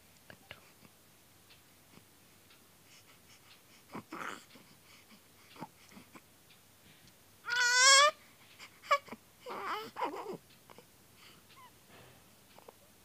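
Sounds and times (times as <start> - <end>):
baby crying high-pitched: 7.5 - 8.2
baby fussing: 7.5 - 10.4.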